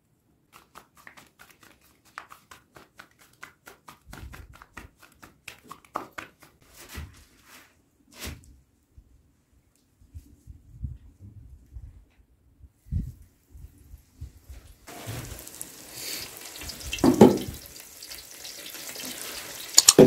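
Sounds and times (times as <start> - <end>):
dough slapped between hands: 0.5 - 6.6.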